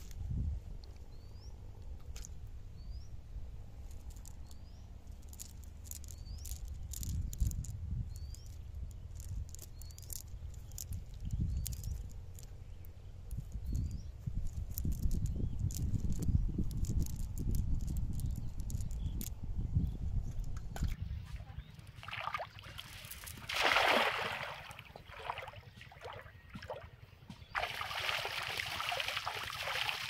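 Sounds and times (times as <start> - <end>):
bird chirping: 2.7 - 3.3, 4.1 - 17.2, 17.9 - 22.0.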